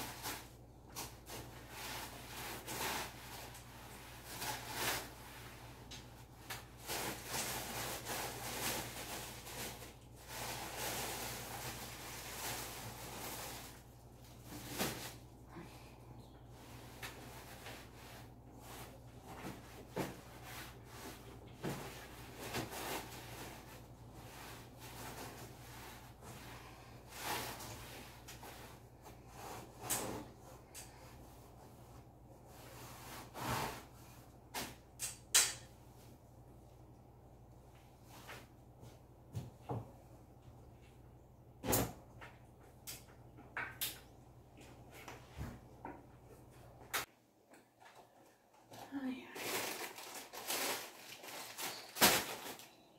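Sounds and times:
rustling: 0.0s - 15.4s, 49.3s - 52.9s.

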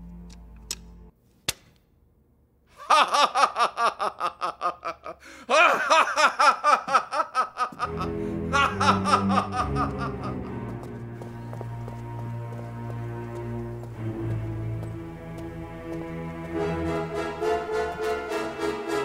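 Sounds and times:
background music: 0.0s - 1.1s, 7.8s - 19.0s
man laughing heartily: 2.7s - 10.6s.

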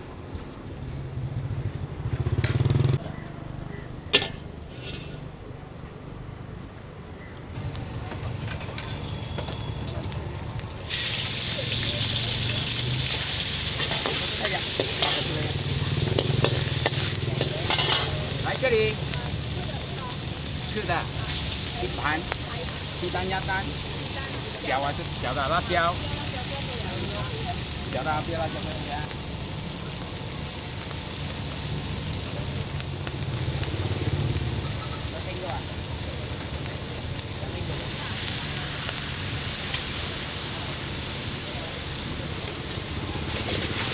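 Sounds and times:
metal spatula scraping a wok: 4.2s - 5.3s, 12.7s - 18.4s
prawns sizzling in hot oil: 7.6s - 43.9s.

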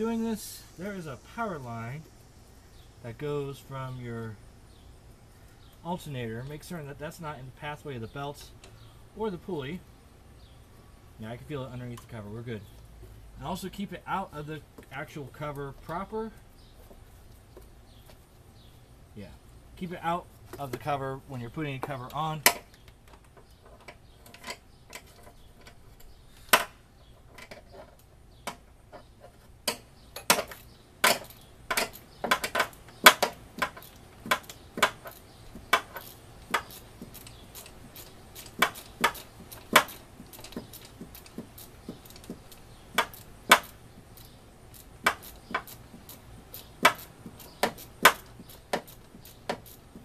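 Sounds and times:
hand ratchet clicking: 29.7s - 49.9s.

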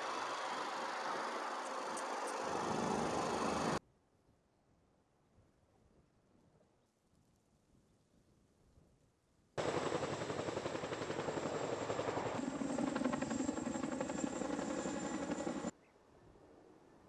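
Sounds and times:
helicopter rotor beating: 0.0s - 3.8s, 9.6s - 15.7s
high turbine whine: 0.0s - 3.8s.

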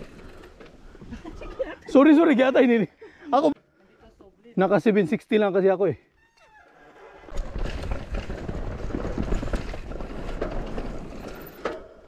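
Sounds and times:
tyre noise on dirt trail: 6.8s - 12.0s
bike knocks and rattles: 7.3s - 12.0s.

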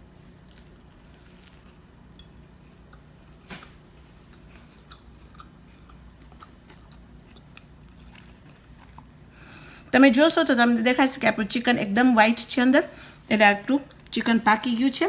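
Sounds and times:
person chewing crispy food: 0.2s - 1.9s, 2.7s - 9.7s.

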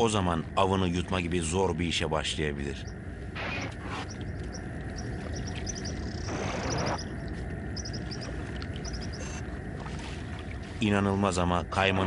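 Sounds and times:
small animals chirping: 2.7s - 9.4s.

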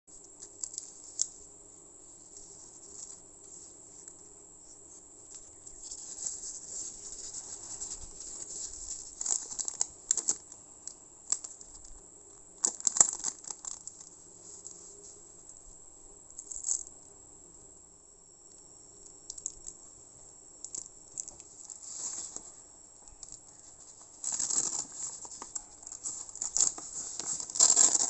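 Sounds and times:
faint steady hum: 0.1s - 28.0s
paper wrapper crinkling: 0.3s - 1.4s, 4.9s - 15.2s, 16.4s - 16.9s, 20.7s - 28.0s
plastic and tissue paper rustling: 2.0s - 10.6s, 12.6s - 15.5s, 21.2s - 28.0s
tape peeling: 23.2s - 28.0s.

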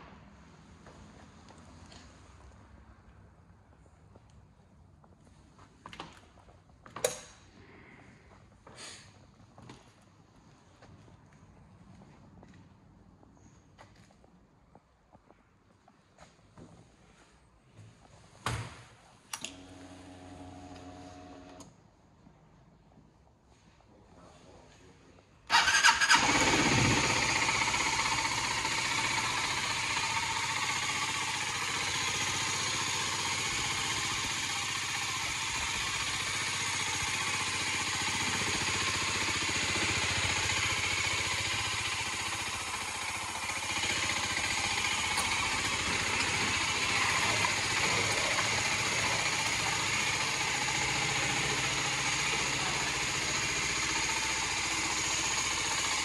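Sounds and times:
motorcycle engine starting and idling: 0.0s - 2.8s, 5.8s - 8.0s, 18.7s - 21.8s, 25.5s - 56.0s.

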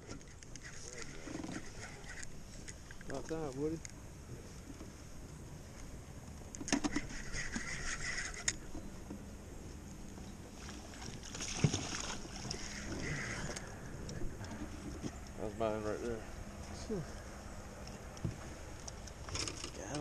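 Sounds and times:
landing net splashing into water: 11.0s - 12.9s.

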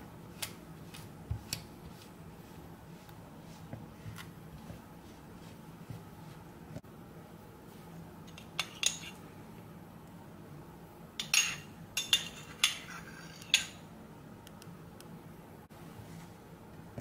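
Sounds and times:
metal spoon clinking on ceramic plate: 8.3s - 9.2s, 11.2s - 13.8s.

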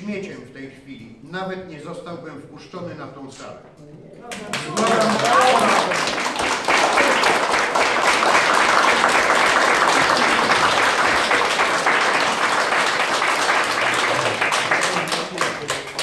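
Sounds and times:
crowd applauding: 4.3s - 16.0s.

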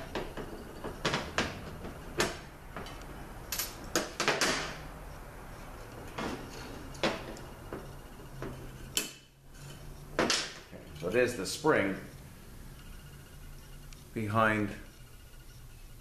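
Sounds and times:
pliers and metal parts clicking: 2.8s - 4.1s.

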